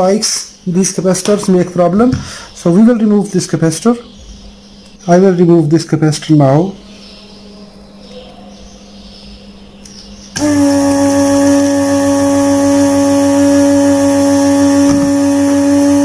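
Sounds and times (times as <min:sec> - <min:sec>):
loud machine hum: 0:10.3 - 0:16.0.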